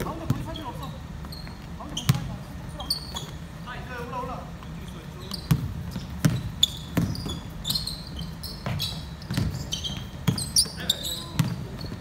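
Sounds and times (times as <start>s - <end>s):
basketball bouncing on wooden floor: 0.0s - 0.6s, 1.2s - 2.4s, 5.3s - 12.0s
sneakers squeaking: 0.0s - 12.0s.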